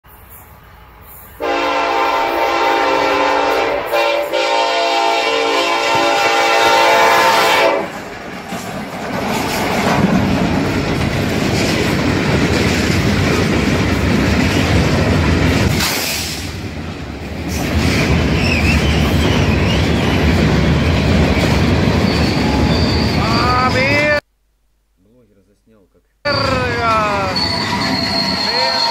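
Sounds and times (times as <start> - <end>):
locomotive air horn: 1.4 - 7.9
freight train wheels clattering: 7.8 - 23.2.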